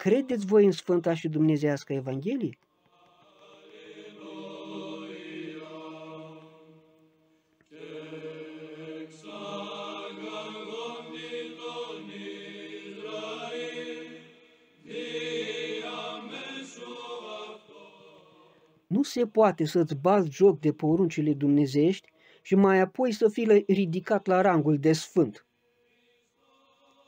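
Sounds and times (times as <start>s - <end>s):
voices chanting: 3.0s - 6.9s, 7.7s - 19.0s.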